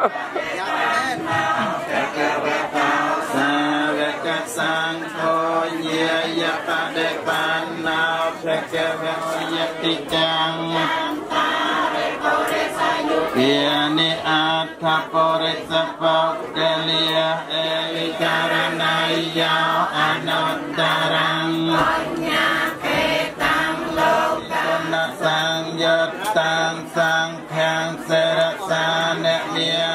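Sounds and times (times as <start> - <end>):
group of voices chanting: 0.0 - 29.9.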